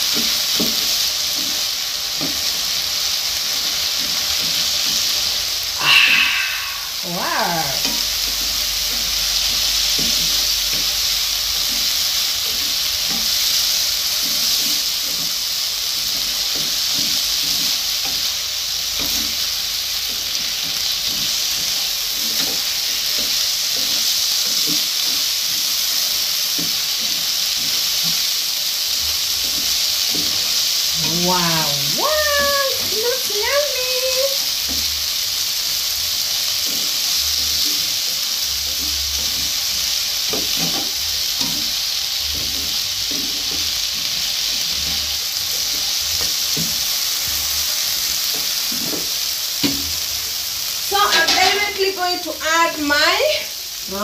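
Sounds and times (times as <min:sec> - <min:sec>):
vegetables sizzling in frying pan: 0:00.0 - 0:54.0
high cry falling in pitch: 0:05.8 - 0:07.8.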